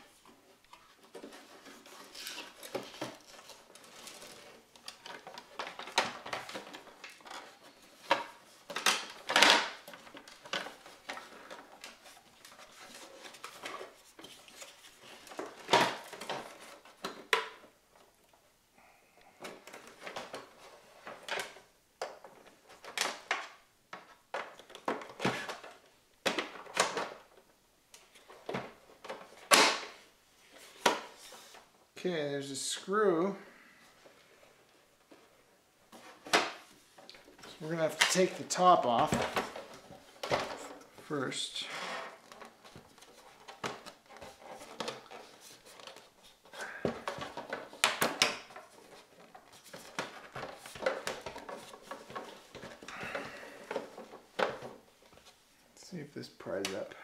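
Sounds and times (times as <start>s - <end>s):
plastic panels clicking and creaking: 0.6s - 18.3s, 19.3s - 30.0s, 35.1s - 55.4s
handling and rubbing noise: 30.0s - 33.3s, 33.9s - 47.8s.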